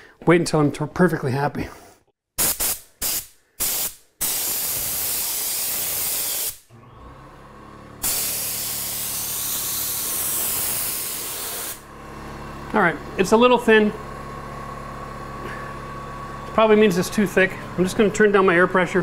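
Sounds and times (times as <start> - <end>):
air spray gun hissing: 2.4 - 6.7, 8.0 - 11.9.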